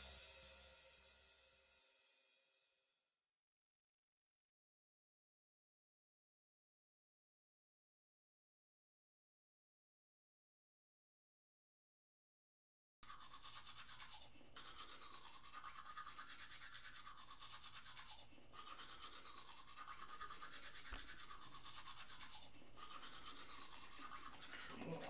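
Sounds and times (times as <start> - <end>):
toothbrush scrubbing teeth: 13.0 - 25.0.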